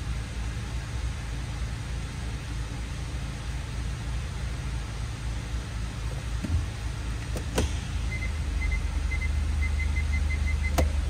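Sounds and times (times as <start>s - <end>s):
car engine idling: 0.0s - 11.0s
parking sensor beeping: 8.0s - 11.0s.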